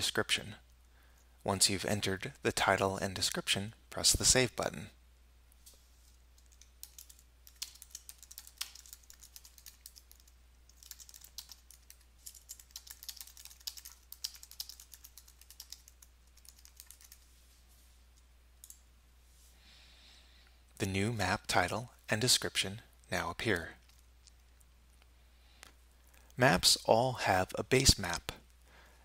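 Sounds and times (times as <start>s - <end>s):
keyboard typing: 6.4s - 17.3s.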